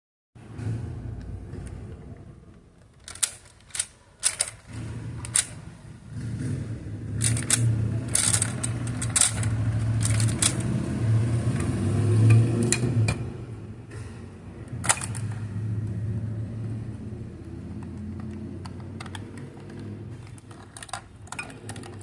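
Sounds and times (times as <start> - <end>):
sharp plastic clicks: 2.5 - 5.8, 7.2 - 10.8, 17.5 - 22.0
toy helicopter rotors whirring: 7.2 - 10.6.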